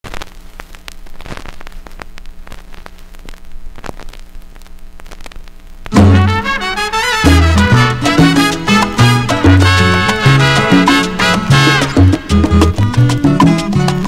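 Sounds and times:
vinyl crackle and pops: 0.0 - 14.0
salsa music with bass and brass: 5.9 - 14.0.

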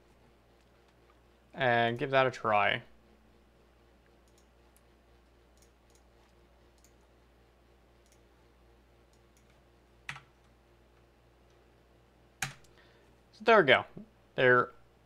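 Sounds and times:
faint mouse clicks: 4.2 - 4.9, 5.5 - 6.1, 6.7 - 7.0, 8.0 - 8.3, 9.1 - 10.5.

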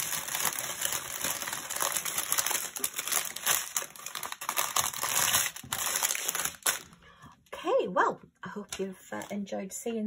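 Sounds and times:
plastic bags crinkling: 0.0 - 7.1.

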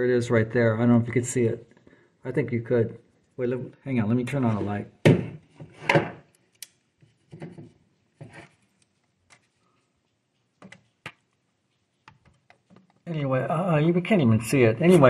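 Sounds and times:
handling rustles and clicks: 8.3 - 13.1.

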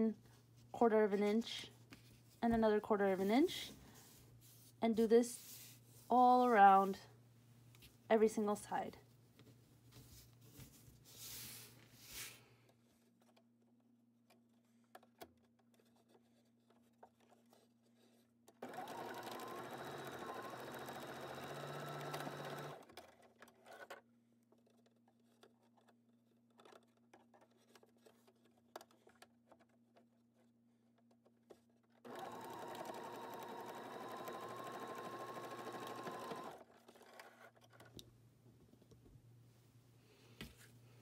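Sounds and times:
sewing machine stitching: 18.5 - 24.0, 32.0 - 37.9.

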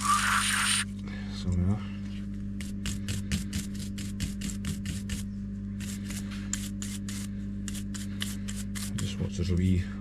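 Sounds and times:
steady low hum: 0.0 - 10.0
stiff brush scrubbing: 2.6 - 9.2.

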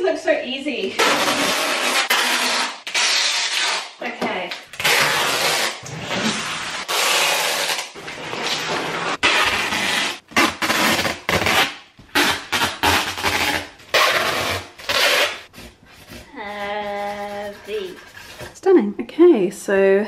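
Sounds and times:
packing tape ripping off roll: 0.9 - 15.6.

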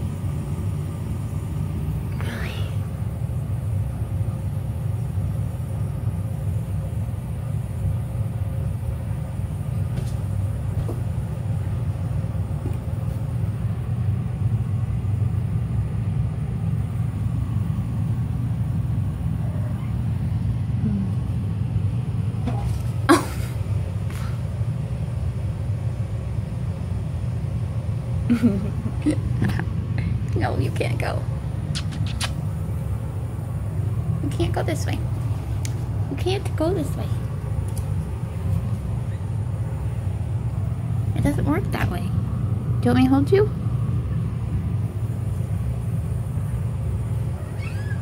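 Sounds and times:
steady low rumble: 0.0 - 48.0
sharp click: 31.7 - 32.4.

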